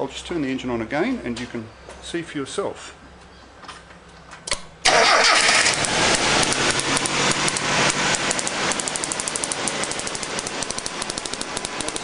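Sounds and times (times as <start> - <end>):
car engine starting and running: 4.8 - 12.0.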